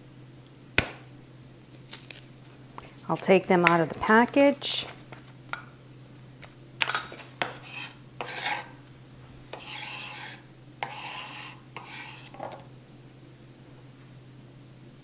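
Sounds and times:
paper wrapper tearing: 1.8 - 2.3
knife scraping cardboard tube: 7.4 - 8.8, 9.5 - 12.4.

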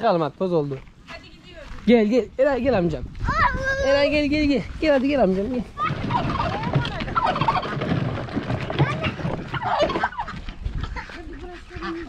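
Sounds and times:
poultry calling: 5.8 - 12.0.

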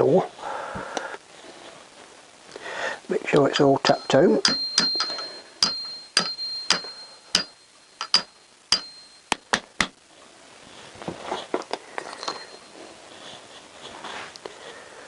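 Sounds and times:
hammer tapping metal: 3.5 - 10.0
tools clicking and knocking: 3.5 - 10.0.

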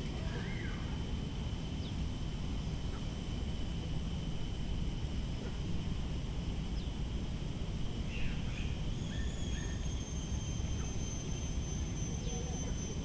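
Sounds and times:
high-pitched whine: 0.0 - 13.0
steady low rumble: 0.0 - 13.0
bird chirps: 8.1 - 13.0.

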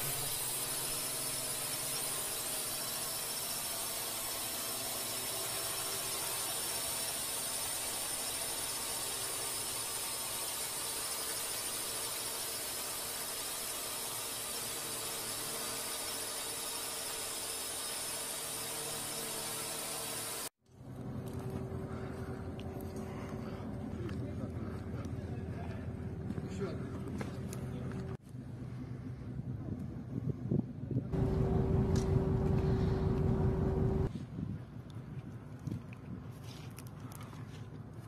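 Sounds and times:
even hiss: 0.0 - 14.4
high-pitched machine whine: 0.0 - 24.4, 31.2 - 34.1.

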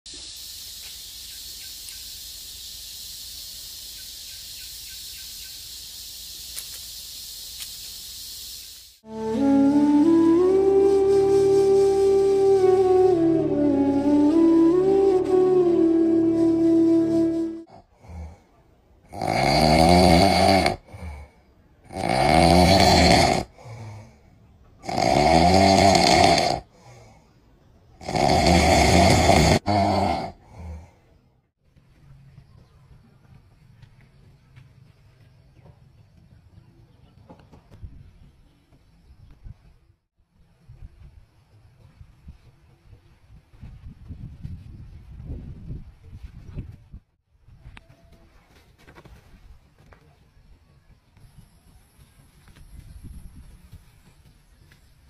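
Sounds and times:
faint bird chirps: 1.0 - 8.3, 32.0 - 33.6
loud snoring: 19.1 - 21.1, 21.9 - 23.5, 24.8 - 26.7, 28.0 - 30.8.

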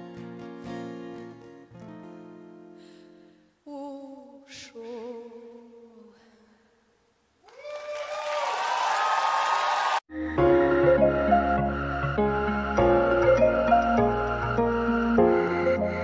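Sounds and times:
woman singing unaccompanied: 3.7 - 6.6
audience applause and cheering: 7.4 - 11.2.

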